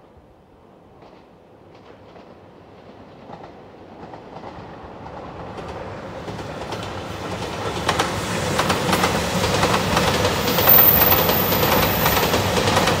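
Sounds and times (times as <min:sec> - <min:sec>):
diesel train passing: 0:02.5 - 0:13.0
train wheels clicking over rail joints: 0:06.3 - 0:13.0.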